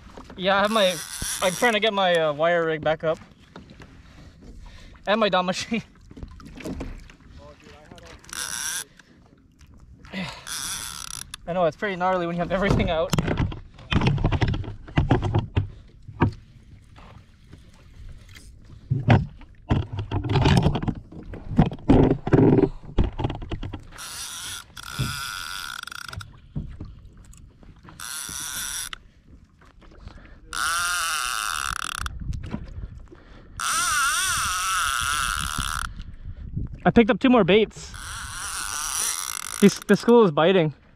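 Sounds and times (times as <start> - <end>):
fishing reel drag buzzing: 0.6 - 1.8, 8.2 - 8.9, 10.4 - 11.4, 23.9 - 26.3, 28.0 - 29.0, 30.5 - 32.1, 33.6 - 35.9, 37.9 - 39.9
irregular knocks and clatters: 12.6 - 17.1, 18.8 - 24.0.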